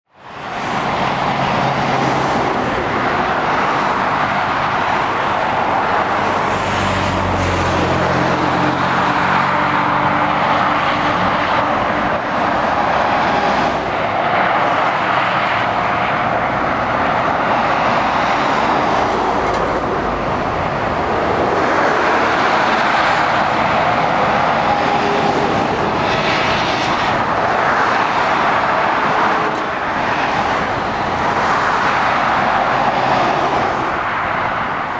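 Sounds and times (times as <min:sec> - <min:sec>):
lorry diesel engine drone: 0:00.1 - 0:34.7
road traffic roar: 0:00.1 - 0:34.9.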